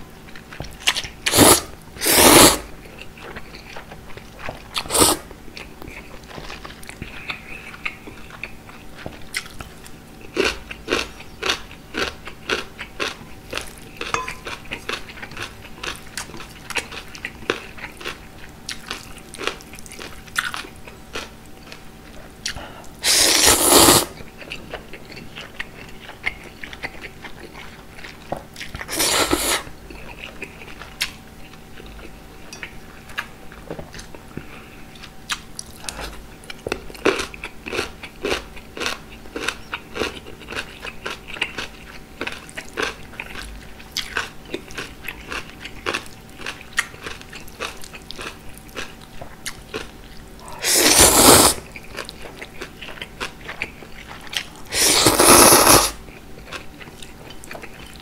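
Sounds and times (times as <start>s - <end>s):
close chewing: 0.2s - 58.0s
loud noodle slurping: 1.2s - 2.7s, 4.8s - 5.3s, 23.0s - 24.2s, 28.8s - 29.7s, 50.5s - 51.7s, 54.7s - 56.0s.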